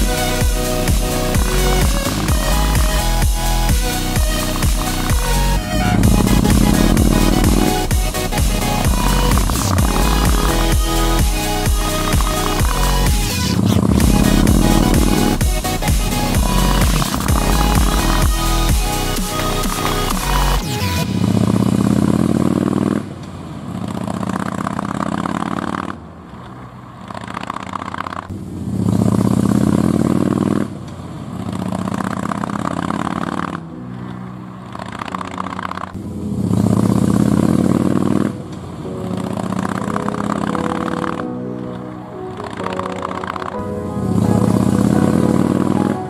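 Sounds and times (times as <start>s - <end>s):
motorcycle engine accelerating: 0.0s - 18.9s, 19.7s - 26.1s, 27.0s - 33.7s, 34.7s - 38.4s.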